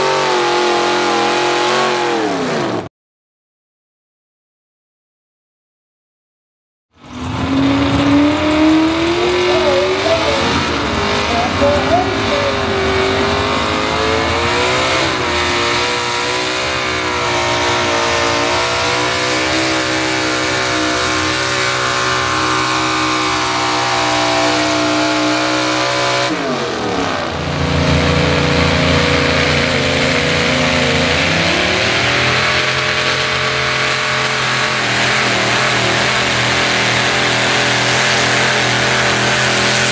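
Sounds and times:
lower engine revving: 0.0s - 2.9s, 7.0s - 39.9s
truck engine running hard: 0.0s - 2.9s, 7.0s - 39.9s.

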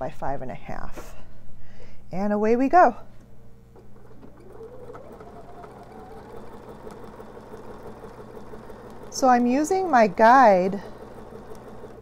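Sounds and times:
sewing machine stitching: 3.8s - 12.0s.

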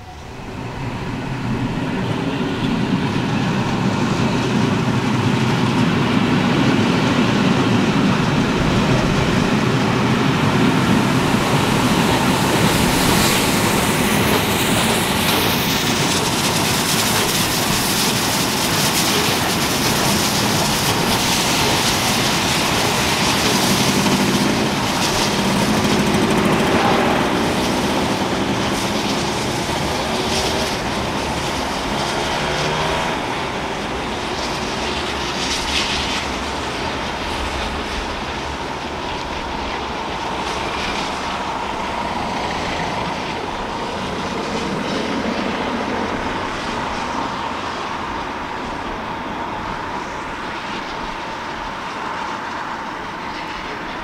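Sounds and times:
train wheels clattering on rails: 0.0s - 54.0s.

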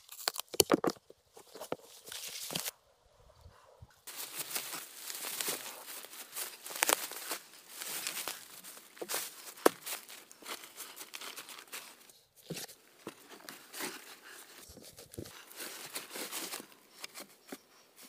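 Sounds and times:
dry leaves rustling and crunching: 4.1s - 17.6s.

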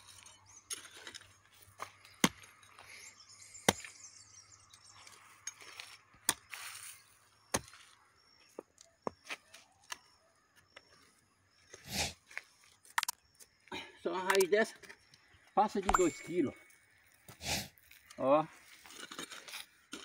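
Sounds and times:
scrape of loose earth: 17.3s - 20.0s.

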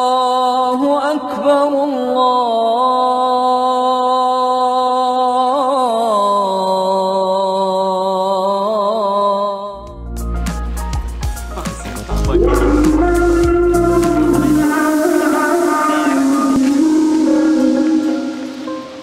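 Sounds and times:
music with deep bass: 10.0s - 19.0s
man singing call to prayer: 12.2s - 19.0s.

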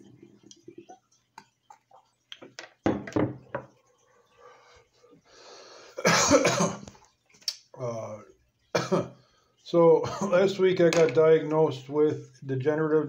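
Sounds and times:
man coughing: 6.0s - 6.9s, 8.8s - 9.1s.

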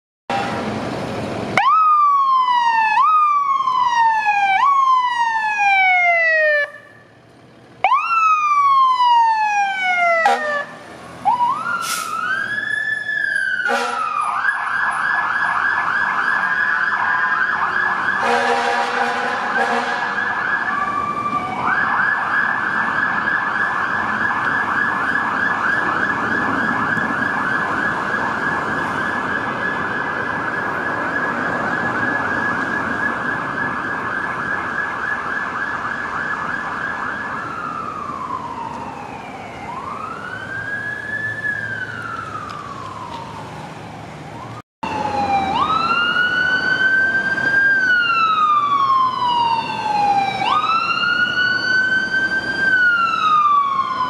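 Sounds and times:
buzzy emergency vehicle siren: 1.6s - 7.1s, 7.8s - 54.0s
electronic siren: 19.5s - 54.0s.

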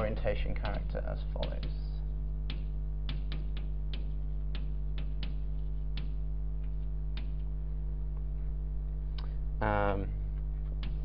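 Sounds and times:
electrical mains hum: 0.0s - 11.0s
chalk tapping on blackboard: 0.6s - 1.8s, 2.4s - 7.5s.

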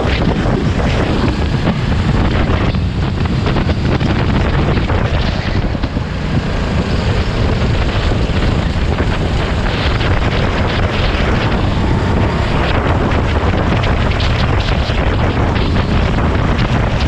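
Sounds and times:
kart engine running: 0.0s - 17.0s
wind buffeting microphone: 0.0s - 17.0s.

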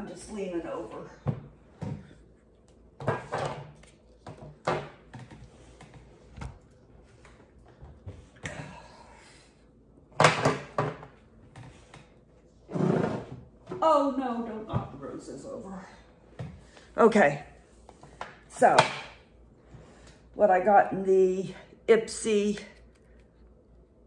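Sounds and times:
items knocking and thudding: 3.0s - 6.6s, 10.1s - 11.7s.

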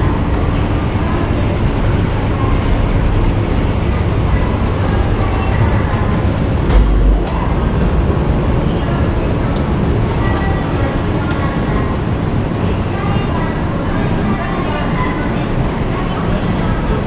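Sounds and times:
escalator mechanical rumble: 0.0s - 17.0s
low thump: 6.7s - 8.1s.

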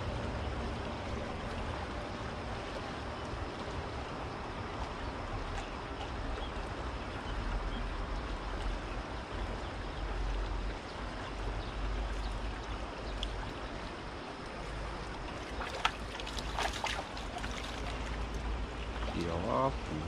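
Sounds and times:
river water flowing: 0.0s - 20.0s
fish splashing at surface: 15.4s - 18.2s.

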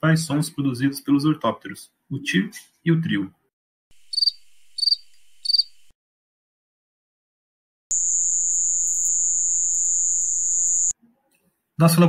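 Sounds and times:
cricket chirp: 4.0s - 5.8s, 7.9s - 10.9s
high-pitched insect trill: 4.0s - 5.8s, 7.9s - 10.9s.

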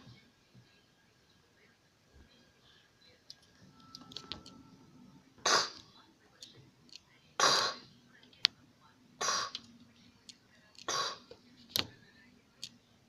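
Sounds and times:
person coughing: 7.4s - 7.8s.

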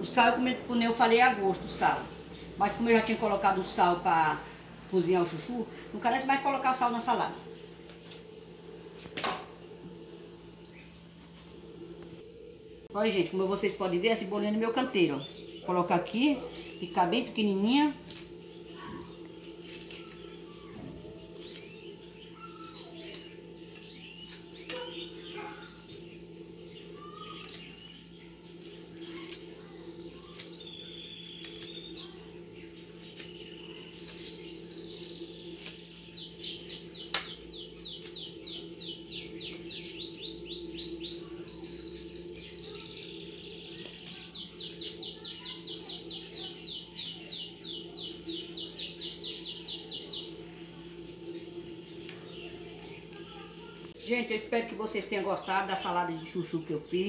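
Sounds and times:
songbird chirping and trilling: 0.0s - 57.0s
steady low hum: 0.0s - 57.0s.

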